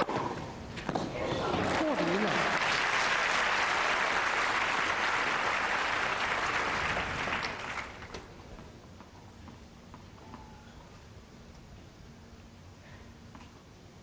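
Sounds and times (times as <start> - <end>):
crowd applauding: 1.6 - 8.1.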